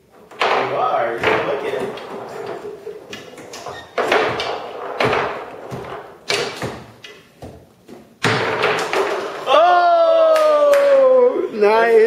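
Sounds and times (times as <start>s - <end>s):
foosball knocking against table: 0.3s - 9.5s.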